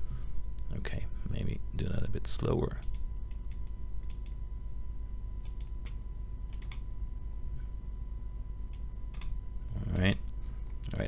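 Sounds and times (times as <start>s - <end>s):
low steady hum: 0.0s - 11.0s
computer mouse clicks: 2.8s - 4.4s, 5.4s - 6.8s, 8.7s - 10.1s.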